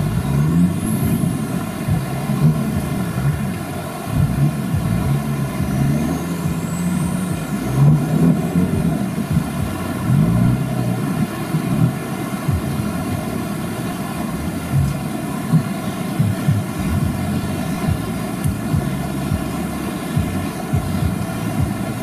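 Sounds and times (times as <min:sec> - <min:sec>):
vehicle engine revving: 0:00.0 - 0:22.0.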